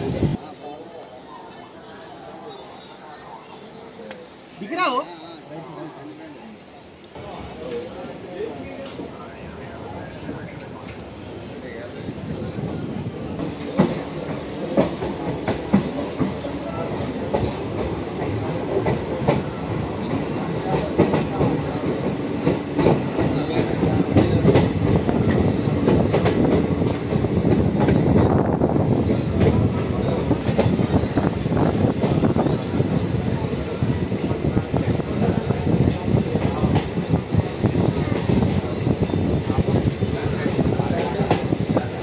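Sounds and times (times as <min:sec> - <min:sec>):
train rumbling on track: 0:00.0 - 0:04.9, 0:06.6 - 0:42.0.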